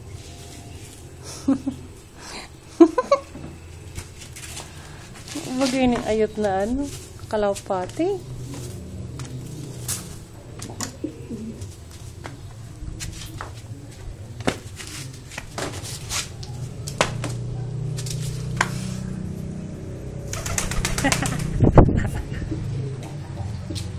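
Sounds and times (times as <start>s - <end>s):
pigeon cooing: 8.4s - 15.3s, 22.3s - 23.9s.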